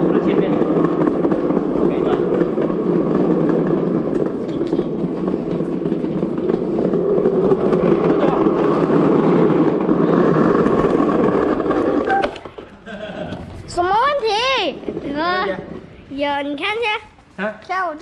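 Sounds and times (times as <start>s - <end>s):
small wheels rolling on tiles: 0.0s - 16.8s.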